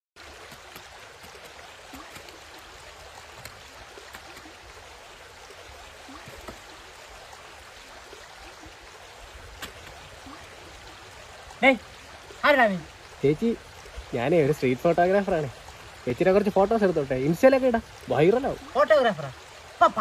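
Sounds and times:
water running in concrete tank: 0:00.2 - 0:20.0.

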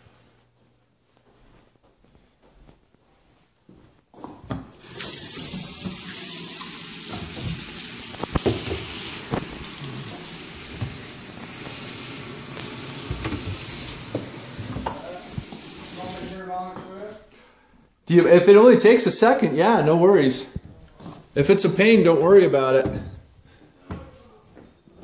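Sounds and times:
tap water pouring into sink: 0:04.7 - 0:16.4.

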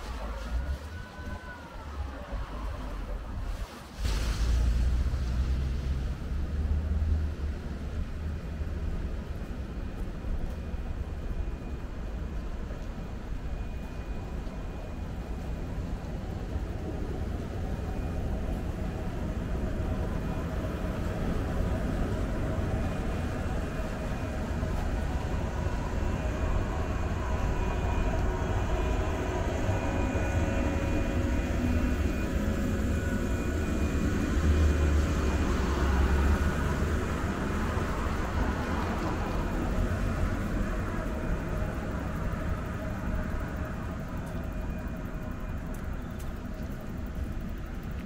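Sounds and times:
electric train pulling out: 0:11.4 - 0:48.0.

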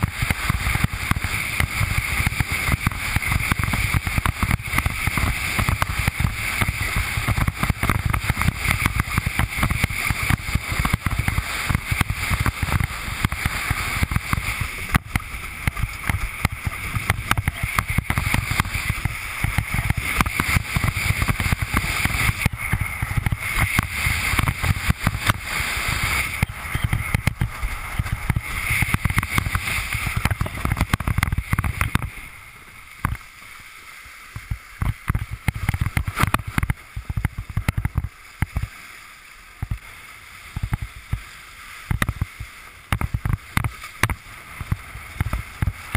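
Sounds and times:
hull knocking on waves: 0:00.0 - 0:32.1, 0:33.0 - 0:33.2, 0:34.3 - 0:38.7, 0:40.5 - 0:45.9
wind buffeting microphone: 0:00.0 - 0:32.3
water rushing and slapping: 0:00.0 - 0:45.9.

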